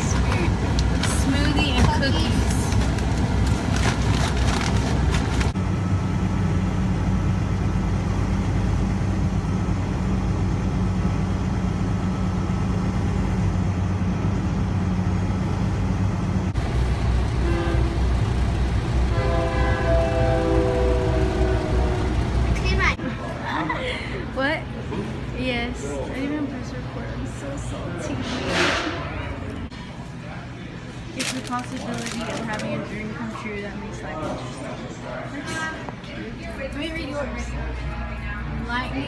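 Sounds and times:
vehicle road and engine drone: 0:00.0 - 0:32.6
train horn: 0:17.3 - 0:18.4, 0:19.0 - 0:22.4
snack packets crinkling: 0:31.2 - 0:32.8.

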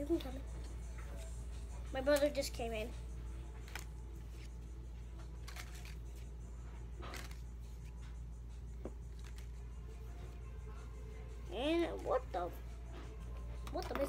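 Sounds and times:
steady low hum: 0:00.0 - 0:13.8
cards rustling: 0:03.4 - 0:09.7.

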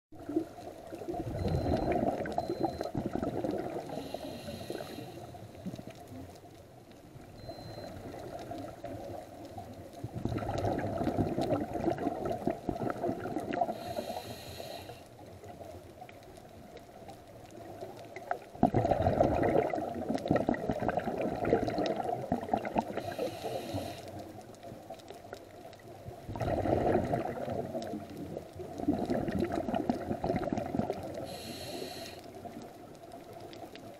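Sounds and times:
bubbling exhalations underwater: 0:00.2 - 0:04.0, 0:10.1 - 0:13.9, 0:18.4 - 0:23.2, 0:26.2 - 0:31.4
regulator hissing inhale: 0:03.9 - 0:05.6, 0:13.7 - 0:15.2, 0:23.0 - 0:24.3, 0:31.2 - 0:32.4.

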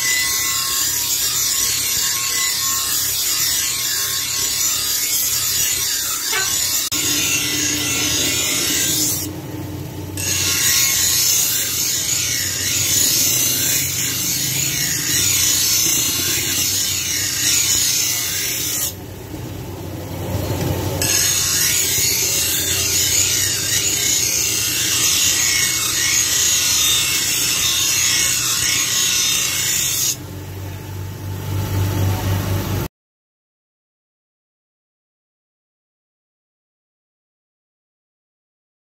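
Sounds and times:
grinder wheel grinding metal blade: 0:00.0 - 0:30.7
grinder motor humming: 0:00.0 - 0:32.9.

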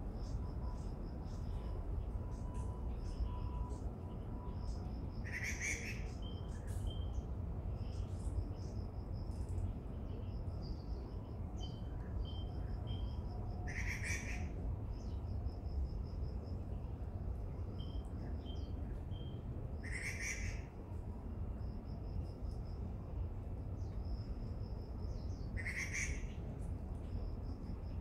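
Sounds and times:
steady low rumble: 0:20.7 - 0:28.0.

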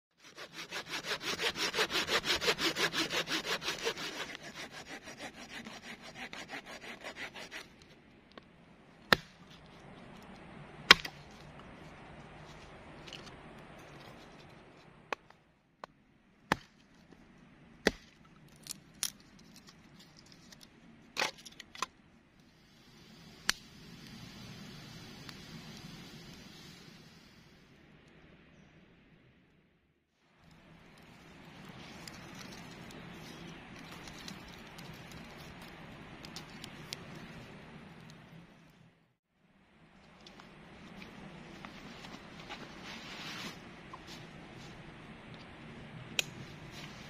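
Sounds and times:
saw cutting through log: 0:00.2 - 0:07.7
hatchet splitting wood: 0:00.3 - 0:07.6, 0:10.9 - 0:11.2, 0:17.8 - 0:19.1.

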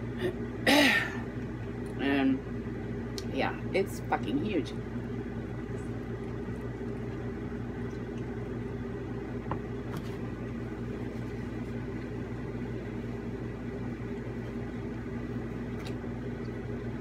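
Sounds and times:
air conditioner humming: 0:00.0 - 0:17.0.

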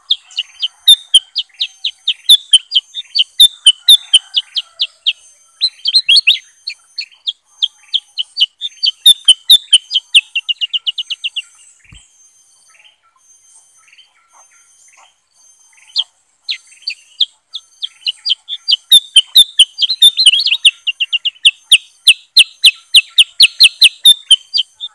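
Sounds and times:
birds chirping: 0:00.0 - 0:24.9.

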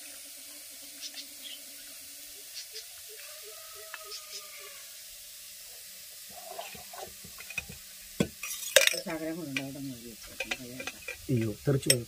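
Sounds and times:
metal clinks of steel cooker: 0:07.4 - 0:09.8, 0:10.4 - 0:12.0.

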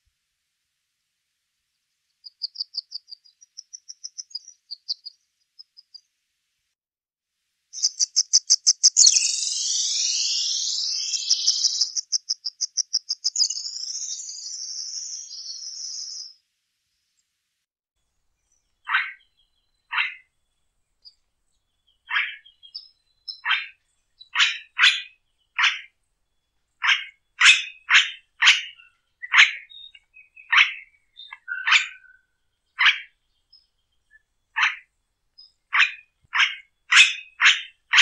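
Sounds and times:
bird singing trills: 0:02.2 - 0:06.0, 0:07.8 - 0:16.4, 0:21.8 - 0:25.9, 0:26.8 - 0:34.8, 0:35.4 - 0:38.0.

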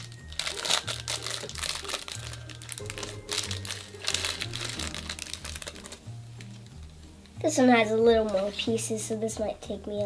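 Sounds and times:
plastic bag crinkling: 0:00.0 - 0:06.1.

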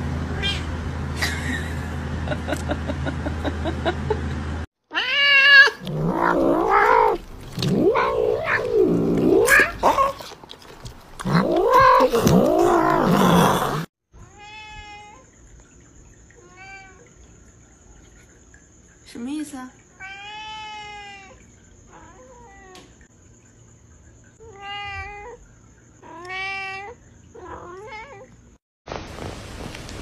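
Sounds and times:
cat yowling: 0:00.3 - 0:00.7, 0:04.9 - 0:10.4, 0:11.2 - 0:15.2.

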